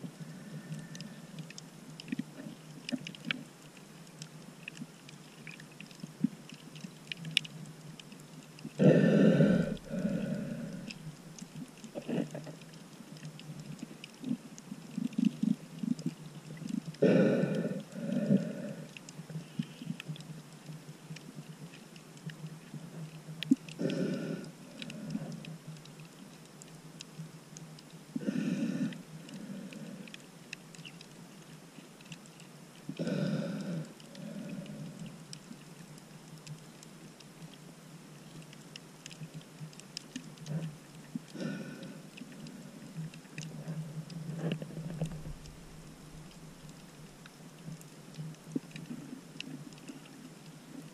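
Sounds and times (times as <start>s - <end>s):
crackling and ticking in water: 0.0s - 50.9s
underwater breathing through snorkel: 8.8s - 11.2s, 17.0s - 20.0s, 23.8s - 25.5s, 28.2s - 30.2s, 33.0s - 35.1s, 41.3s - 45.8s.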